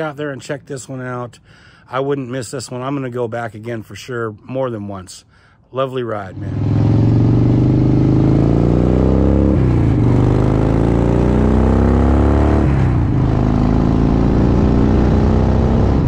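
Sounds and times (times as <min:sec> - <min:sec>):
motorcycle engine accelerating: 0:06.3 - 0:16.0.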